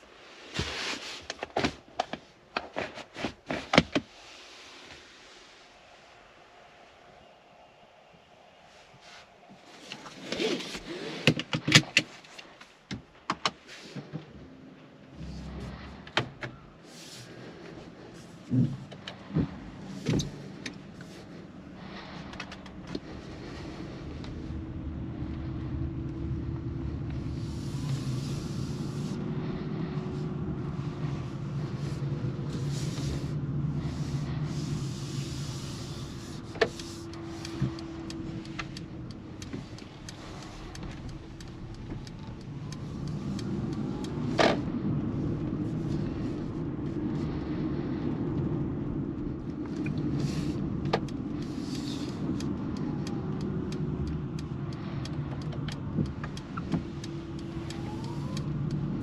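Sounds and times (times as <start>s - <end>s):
tyre and road noise: 0.0s - 59.0s
rising motor whine: 15.1s - 16.0s.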